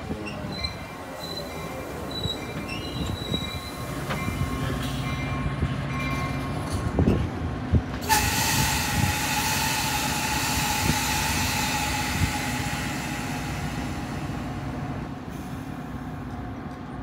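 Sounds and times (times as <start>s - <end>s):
train coaches rumbling past: 0.0s - 17.0s
wheel squeal: 2.1s - 3.9s.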